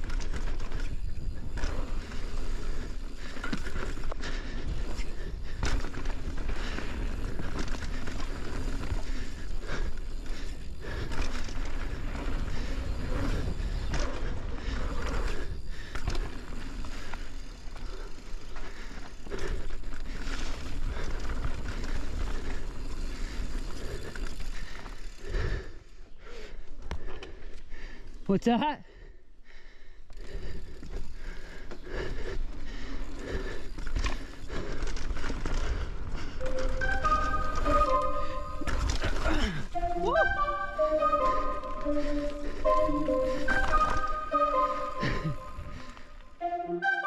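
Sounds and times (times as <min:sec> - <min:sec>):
bike knocking and rattling: 0:00.0 - 0:25.3, 0:30.1 - 0:37.6
bike tyres rolling over dirt: 0:00.0 - 0:28.3, 0:30.1 - 0:39.8, 0:40.7 - 0:46.3.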